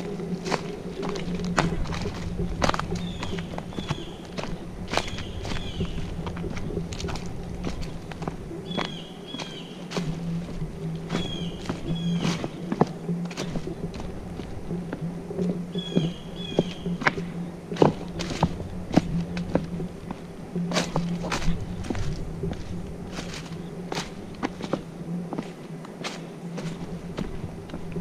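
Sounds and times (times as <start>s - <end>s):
footsteps on forest trail: 0.0s - 28.0s
low hum: 0.0s - 28.0s
small bird chirping: 2.9s - 6.2s, 8.6s - 10.0s, 11.1s - 12.7s, 15.7s - 17.1s.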